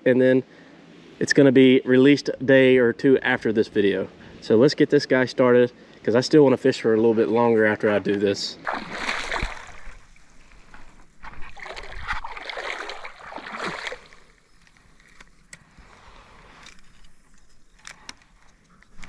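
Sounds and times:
creek water splashing: 8.6s - 16.2s
small sharp clicks: 16.6s - 19.0s.

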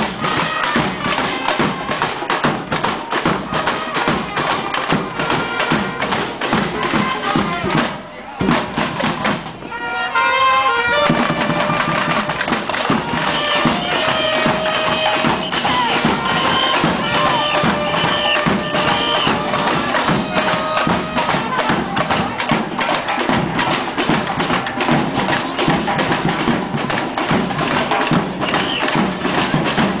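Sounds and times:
samba street band playing: 0.0s - 30.0s
horns playing held notes: 9.6s - 22.2s
bass drums pounding: 11.1s - 30.0s.

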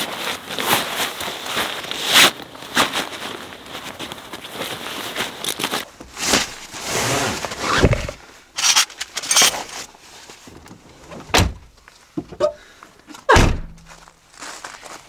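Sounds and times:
bag rustling and scraping: 0.0s - 10.6s
heavy thud: 13.4s - 13.9s.

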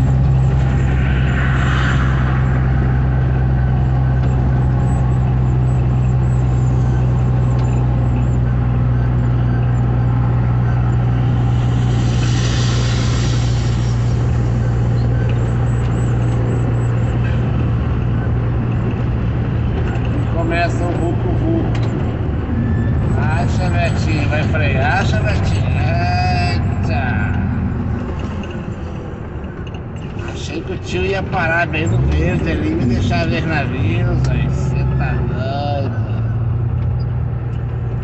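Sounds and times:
tyre and road noise: 0.0s - 38.0s
vehicle engine humming: 0.0s - 38.0s
rush of hiss: 11.4s - 15.0s.

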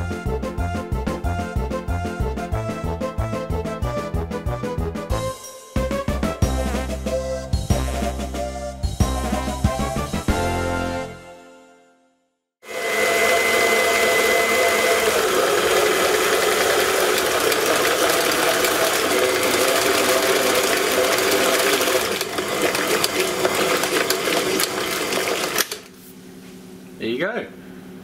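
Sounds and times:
stand mixer whisking cream: 12.7s - 25.9s.

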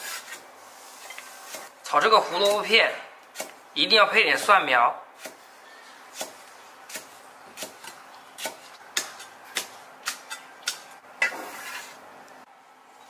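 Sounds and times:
cleaver chopping on wooden block: 6.1s - 10.9s
pieces scraped off board: 11.2s - 12.0s.

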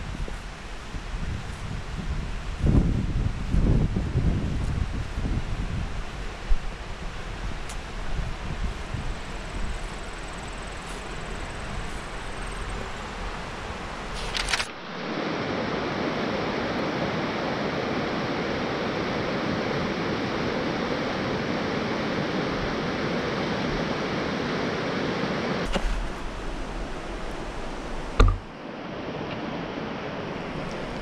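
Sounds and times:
wind rumble on microphone: 0.0s - 31.0s
brief rustle: 14.1s - 14.8s.

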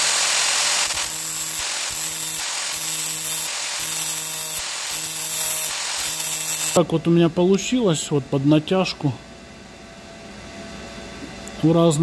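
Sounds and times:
angle grinder grinding metal: 0.0s - 6.8s.

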